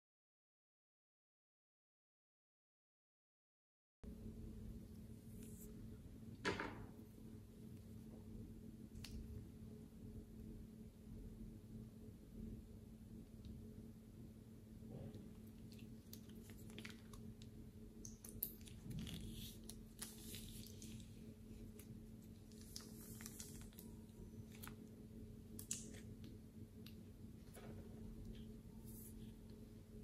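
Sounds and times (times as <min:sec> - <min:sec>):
steady low hum: 0:04.0 - 0:30.0
plastic piping bag crinkling: 0:15.5 - 0:26.3.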